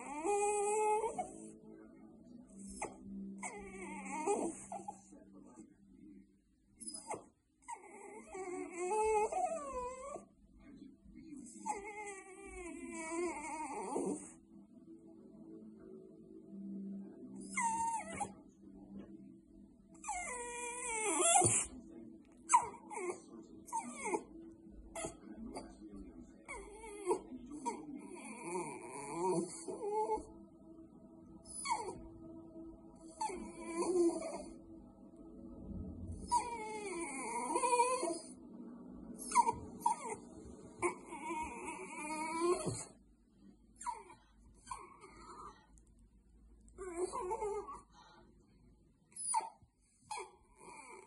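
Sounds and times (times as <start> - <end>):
dog whining and whimpering: 0.0 - 1.5, 2.5 - 5.1, 6.8 - 10.3, 11.6 - 14.4, 17.4 - 18.4, 19.9 - 21.7, 22.5 - 25.6, 26.4 - 30.3, 31.4 - 32.2, 32.8 - 34.6, 36.1 - 38.4, 39.2 - 40.2, 40.8 - 43.0, 43.8 - 45.5, 46.7 - 47.9, 49.1 - 51.0.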